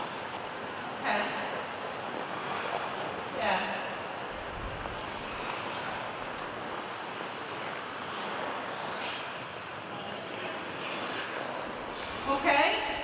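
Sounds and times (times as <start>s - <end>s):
ice skate blades gliding on ice: 0.0s - 13.0s
sharp skate scrape: 4.6s - 12.8s.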